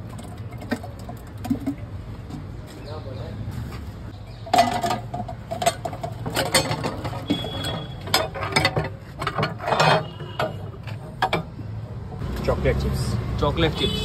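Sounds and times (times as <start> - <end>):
metallic clanks and clicks: 4.5 - 11.6.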